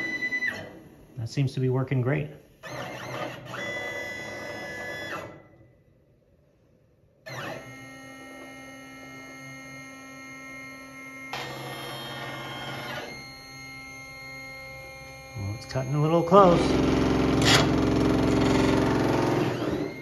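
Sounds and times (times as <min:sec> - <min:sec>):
stepper motors whining: 0:07.3 - 0:20.0.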